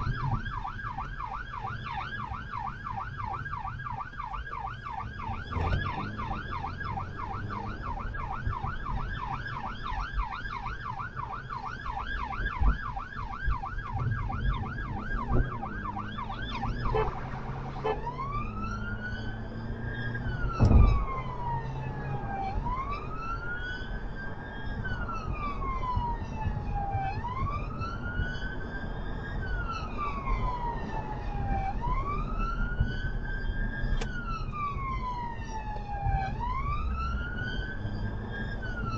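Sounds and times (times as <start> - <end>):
electronic siren: 0.0 - 38.9
road rumble: 0.0 - 38.9
loud thump: 20.6 - 21.0.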